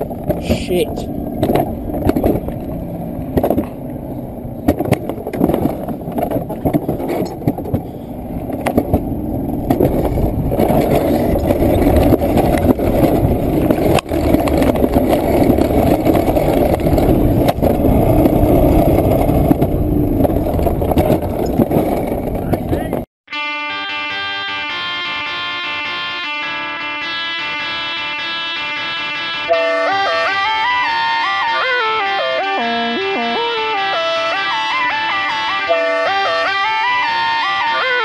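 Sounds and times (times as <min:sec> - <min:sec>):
wheels rumbling on steel rail: 0:00.0 - 0:23.1, 0:26.2 - 0:38.0.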